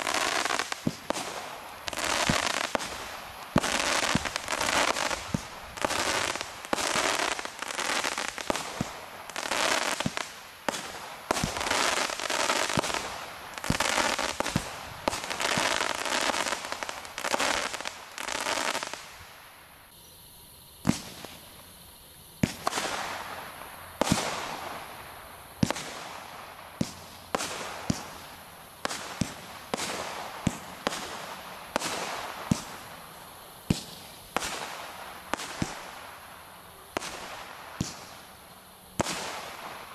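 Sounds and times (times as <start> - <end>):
firework shots: 0.0 - 19.6, 20.8 - 21.8, 22.4 - 33.0, 33.6 - 36.3, 36.9 - 39.9
rush of firework breaks: 0.0 - 19.9, 20.8 - 21.6, 39.0 - 39.9
firework hiss: 0.0 - 39.9.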